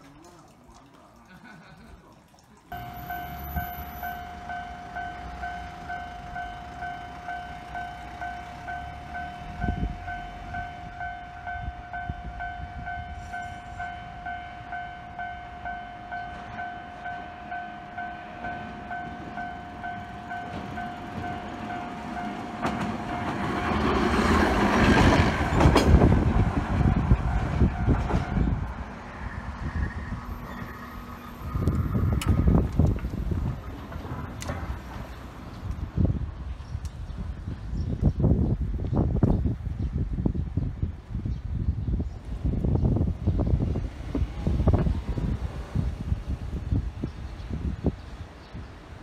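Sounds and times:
level crossing warning bell: 2.7 - 24.5
tram wheels rumbling on rails: 2.8 - 41.2, 41.9 - 49.0.

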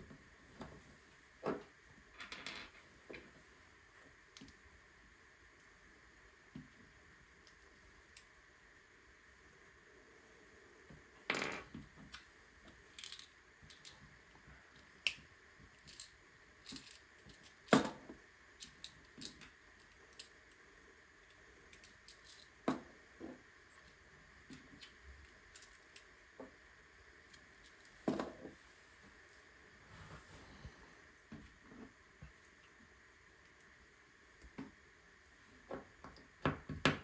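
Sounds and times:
faint steady hiss: 0.0 - 37.0
plastic bricks clicking together: 12.9 - 14.0, 15.0 - 20.6.

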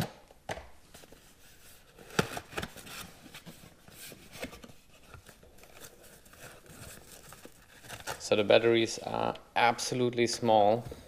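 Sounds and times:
packaging tearing and crinkling: 5.1 - 8.3.

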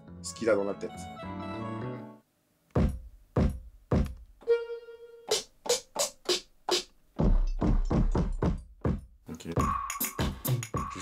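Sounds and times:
deep kick drum hits: 2.8 - 4.2.

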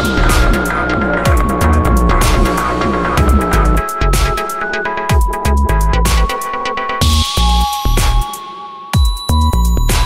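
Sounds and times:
held synth tone: 0.0 - 7.3
deep pulsing bass line: 0.0 - 8.2
electronic dance music: 0.0 - 10.0.

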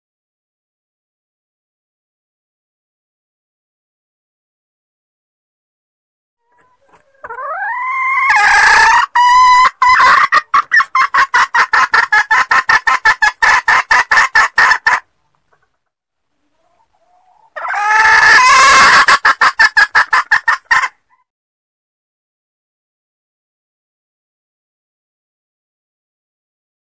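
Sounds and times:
hen clucking: 6.4 - 15.8, 16.4 - 21.2.

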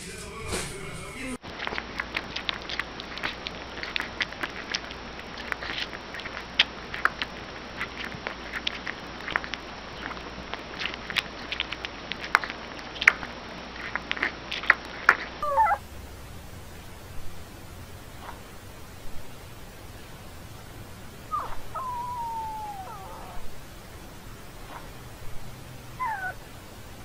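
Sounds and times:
puppy sucking bottle: 1.5 - 15.8
puppy squeal: 15.4 - 15.8, 21.3 - 23.5, 26.0 - 26.4.

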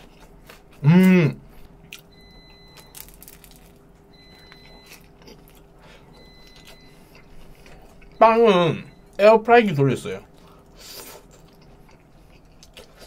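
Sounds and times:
chewing crusty bread: 0.0 - 1.2, 1.8 - 8.2, 10.4 - 13.0
person humming: 0.8 - 1.4.

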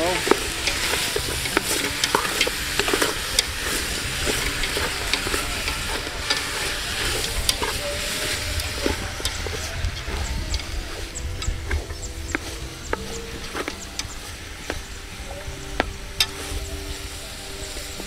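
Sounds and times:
chicken sizzling in a pot: 0.0 - 18.0
utensil scraping a pot: 0.0 - 18.0.

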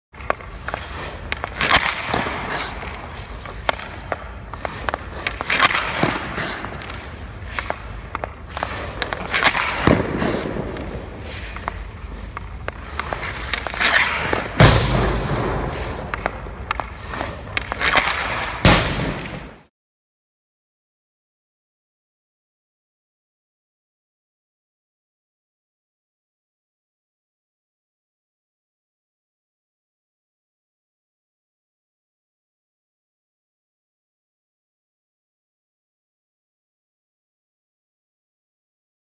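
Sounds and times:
hockey stick clicking on puck: 0.2 - 19.5
ice skates scraping on ice: 0.2 - 19.6.

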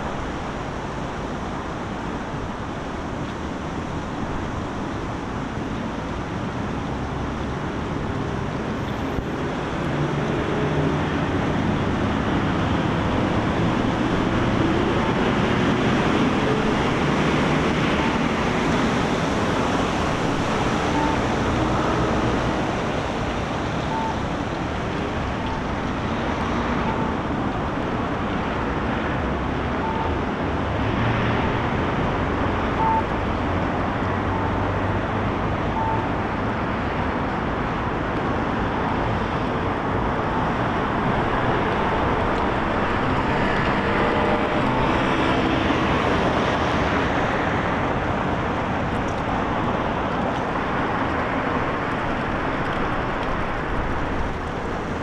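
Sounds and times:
street traffic: 0.0 - 55.0
short faint beeps: 20.9 - 21.2, 23.9 - 24.2, 29.8 - 30.1, 32.8 - 33.1, 35.8 - 36.1.

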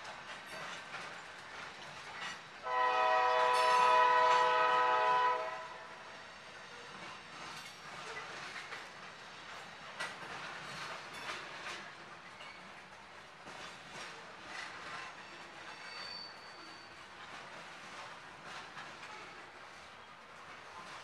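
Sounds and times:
wheels clicking over rail joints: 0.0 - 2.7, 6.9 - 21.0
locomotive air horn blast: 2.6 - 5.9.

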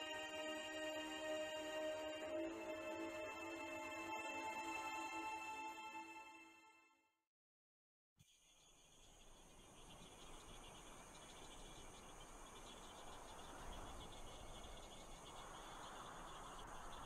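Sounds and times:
open-air hiss: 0.0 - 5.4, 8.2 - 17.0
crickets chirping: 8.3 - 17.0.

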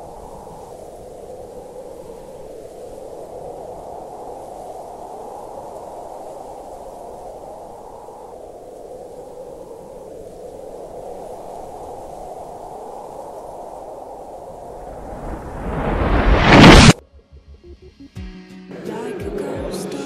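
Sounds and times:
steady rushing noise: 5.7 - 17.0.

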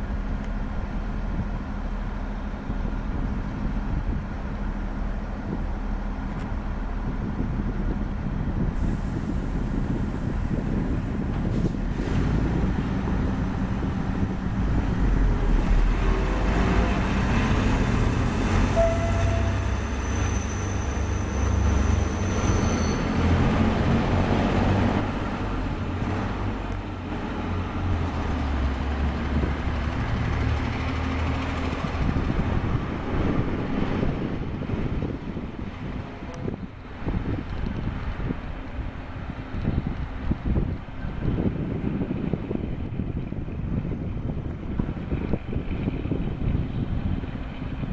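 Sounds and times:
diesel train engines working hard: 0.0 - 47.9
high wheel squeal: 18.6 - 23.4.

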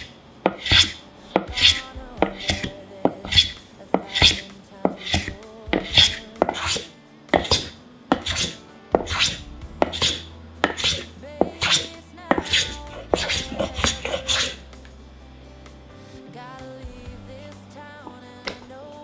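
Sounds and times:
rasping scrape on plane blade: 0.0 - 14.6.

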